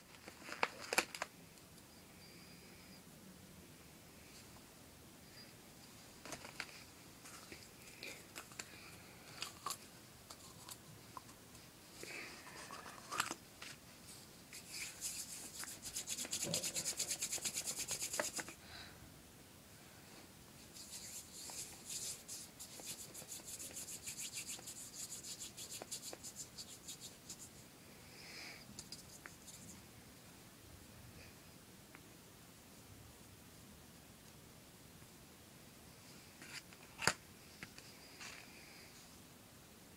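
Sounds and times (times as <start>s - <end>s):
hands rubbing clay: 14.5s - 18.6s, 20.6s - 27.6s.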